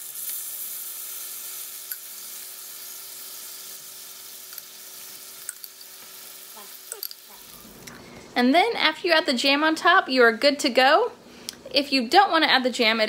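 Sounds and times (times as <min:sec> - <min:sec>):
meat sizzling in a frying pan: 0:00.0 - 0:07.8.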